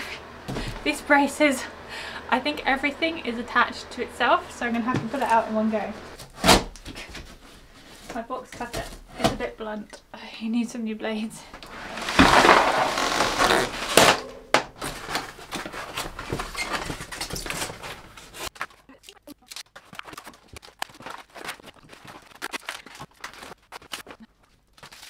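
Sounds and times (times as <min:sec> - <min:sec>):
knocks and thunks of unpacking: 0:06.2 - 0:09.5, 0:11.9 - 0:18.8
foam packaging rustling: 0:11.7 - 0:25.0.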